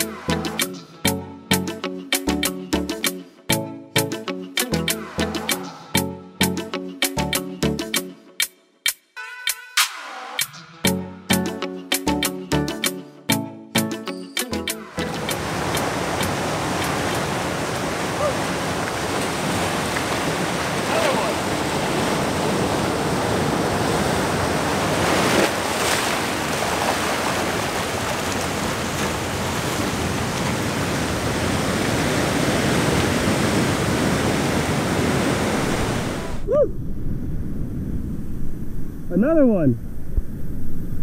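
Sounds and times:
surf washing around rocks: 15.0s - 37.2s
wave crash: 15.1s - 41.0s.

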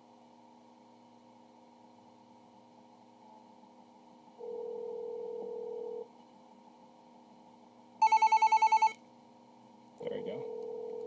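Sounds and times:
low telephone ringback beep: 4.4s - 6.0s, 8.0s - 9.0s, 10.4s - 11.0s.

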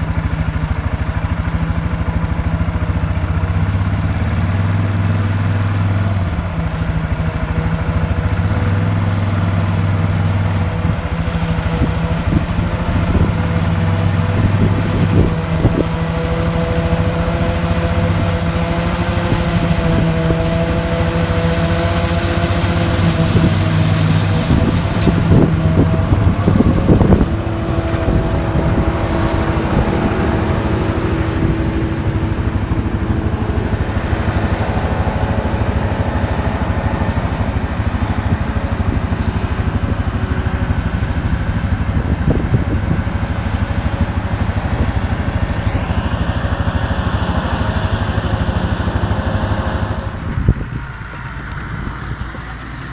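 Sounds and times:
tractor engine droning: 0.0s - 52.9s
forage harvester chopping maize: 10.7s - 32.1s.

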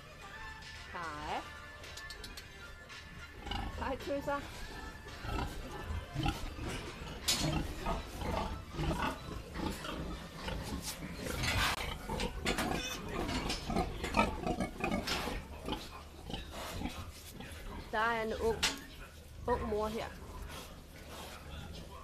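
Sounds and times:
pigs grunting: 3.3s - 22.0s.

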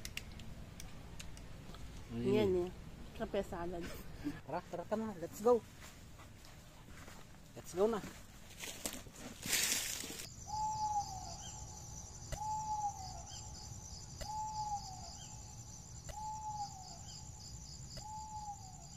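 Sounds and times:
insects trilling: 8.8s - 18.9s
bird whistling single note: 10.4s - 11.6s, 12.2s - 13.4s, 14.2s - 15.0s, 16.1s - 17.0s, 18.0s - 18.8s.

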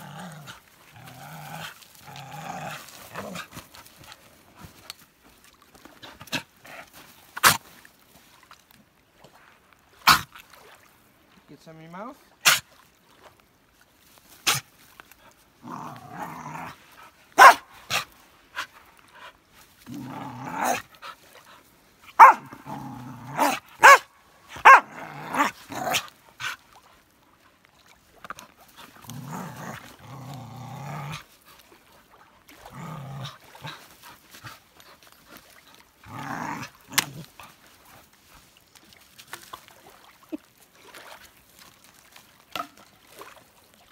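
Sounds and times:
dog growling: 0.0s - 3.6s, 15.6s - 16.8s, 19.9s - 20.8s, 22.2s - 24.0s, 24.6s - 26.1s, 29.0s - 31.2s, 32.6s - 33.8s, 36.0s - 37.3s
dog barking: 17.4s - 17.6s, 22.2s - 22.5s, 23.4s - 24.9s.

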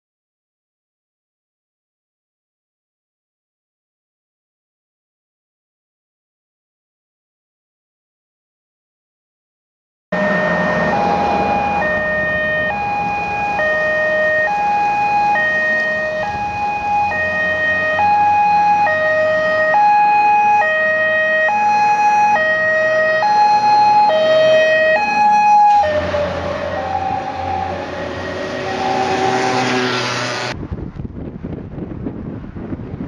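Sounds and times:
engine rumble: 10.2s - 20.1s, 21.7s - 32.6s
fire engine two-tone siren: 10.2s - 30.6s.

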